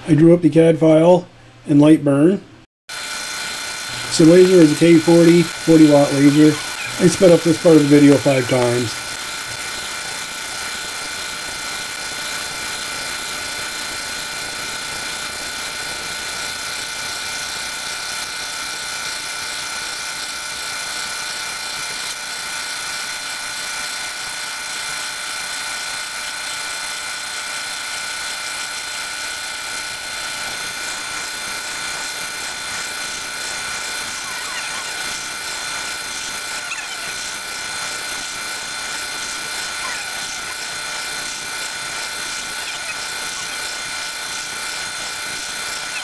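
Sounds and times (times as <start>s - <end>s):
laser engraver mechanical whir: 2.9s - 46.0s
high whining tones: 3.0s - 17.2s, 30.0s - 46.0s.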